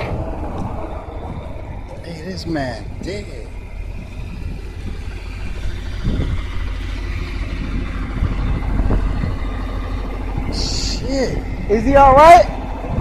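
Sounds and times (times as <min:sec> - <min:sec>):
soft knocks: 0:00.0 - 0:06.2
low roadside rumble: 0:00.0 - 0:13.0.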